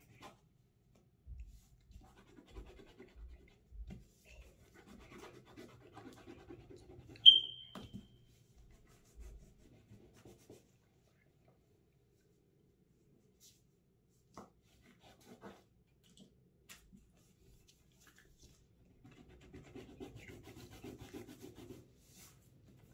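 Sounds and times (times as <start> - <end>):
crayon scratching on paper: 1.9 - 7.2, 8.7 - 10.7, 19.0 - 22.3
sharp tap with high ring: 7.3 - 7.9.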